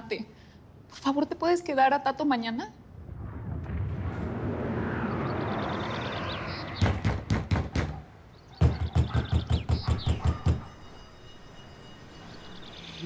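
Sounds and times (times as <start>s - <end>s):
rushing background noise: 2.8s - 13.0s
knocking on a door: 8.6s - 10.6s.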